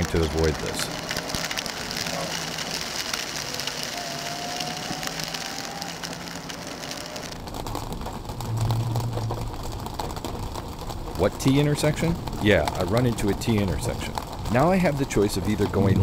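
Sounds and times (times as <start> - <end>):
low in-car rumble: 0.0 - 16.0
rain and hail on car roof: 0.0 - 16.0.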